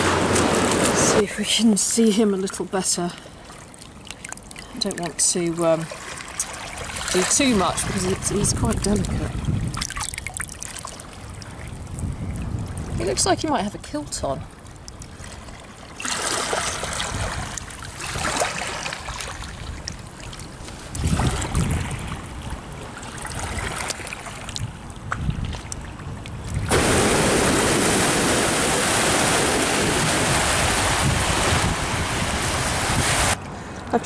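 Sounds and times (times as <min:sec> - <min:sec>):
choppy river waves rushing: 0:00.0 - 0:01.8, 0:03.2 - 0:13.2, 0:14.4 - 0:33.9
river water lapping: 0:00.0 - 0:33.9
wind buffeting microphone: 0:06.9 - 0:10.3, 0:11.2 - 0:15.2, 0:16.7 - 0:18.3, 0:19.3 - 0:33.9.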